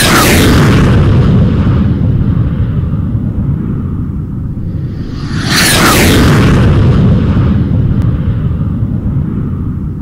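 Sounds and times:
deep steady rumble: 0:00.6 - 0:10.0
whoosh falling in pitch: 0:04.7 - 0:07.5.

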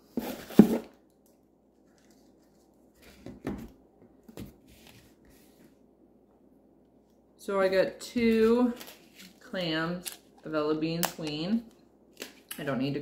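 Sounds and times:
plastic packs knocking and rustling: 0:00.1 - 0:01.0.

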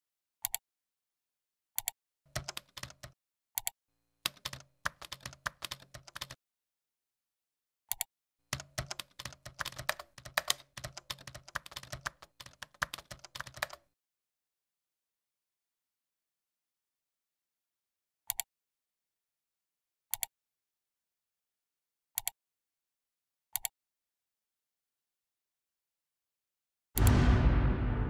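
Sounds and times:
computer keyboard typing: 0:01.8 - 0:03.7, 0:04.3 - 0:06.4, 0:07.9 - 0:13.9.

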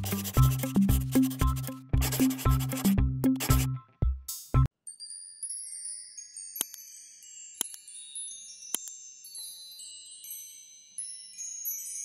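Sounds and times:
high tinkling chimes: 0:04.8 - 0:12.0.

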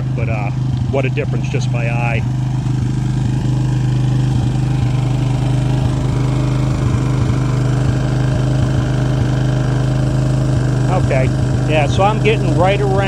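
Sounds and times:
quad engine idling: 0:00.0 - 0:13.0.

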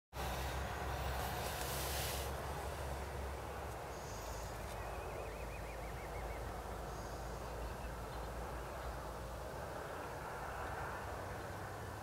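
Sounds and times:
even hiss: 0:00.2 - 0:04.9.

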